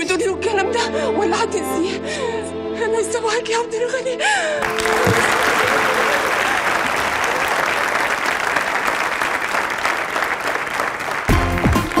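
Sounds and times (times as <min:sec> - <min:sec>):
audience applauding: 0:04.6 - 0:12.0.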